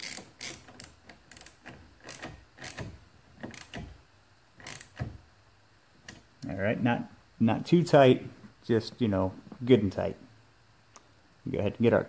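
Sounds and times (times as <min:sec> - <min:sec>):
socket ratchet clicking: 0:00.0 - 0:04.0, 0:04.6 - 0:05.2.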